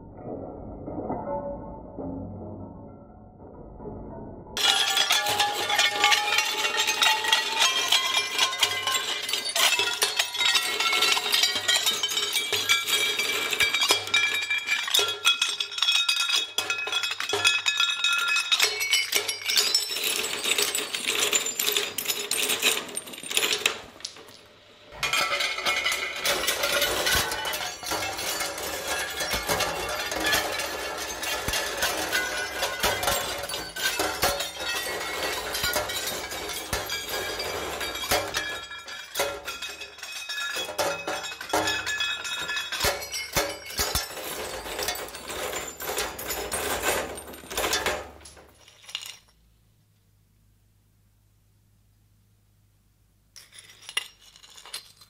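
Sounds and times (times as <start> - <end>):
ceramic shards cracking and clinking: 4.6 - 22.0, 25.0 - 46.3.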